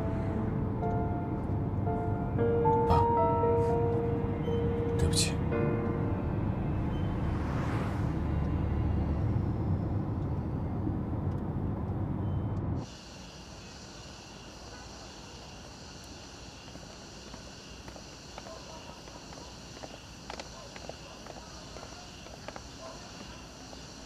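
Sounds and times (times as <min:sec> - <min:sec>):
night insects chirring: 0:00.0 - 0:10.7, 0:12.2 - 0:24.0.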